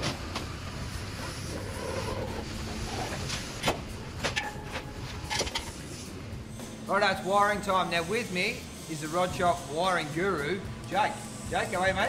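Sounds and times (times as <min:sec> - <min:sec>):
steady background noise: 0:00.0 - 0:12.0
metal clanks and knocks: 0:03.0 - 0:05.8.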